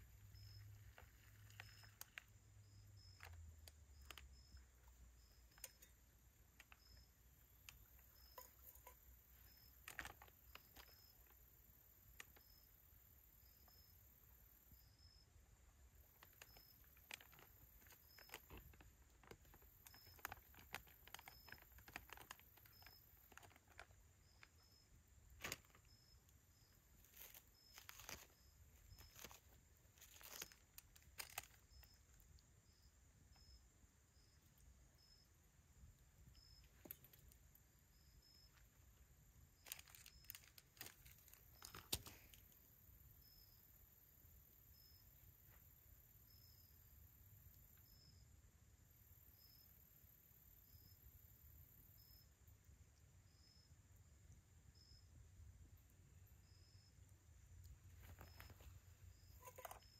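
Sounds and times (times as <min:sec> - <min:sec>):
food pouch crinkling: 0:00.7 - 0:02.4, 0:08.4 - 0:11.0, 0:16.2 - 0:24.0, 0:25.4 - 0:25.8, 0:27.0 - 0:31.9, 0:39.6 - 0:42.2.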